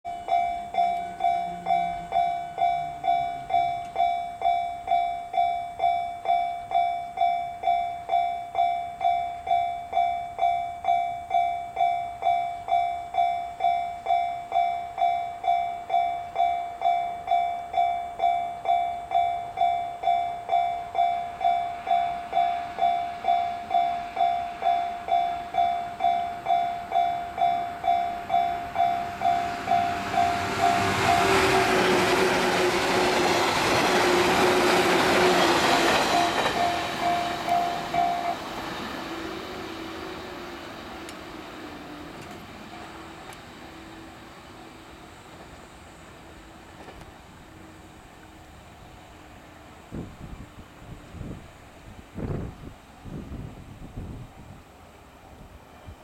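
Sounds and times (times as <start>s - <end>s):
electric train running: 17.3s - 51.0s
level crossing bell dinging: 36.1s - 38.5s.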